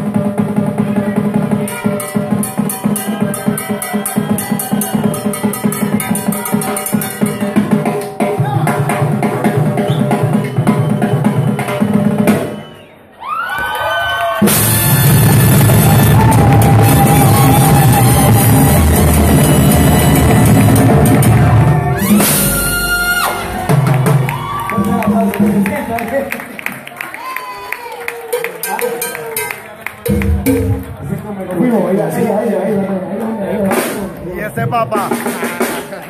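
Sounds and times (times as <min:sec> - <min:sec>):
congas: 0:00.0 - 0:12.8, 0:14.4 - 0:26.4, 0:27.2 - 0:32.6, 0:33.6 - 0:36.0
salsa band with trumpets: 0:00.0 - 0:12.9, 0:13.9 - 0:26.4, 0:27.2 - 0:36.0
timbales solo: 0:14.4 - 0:25.5.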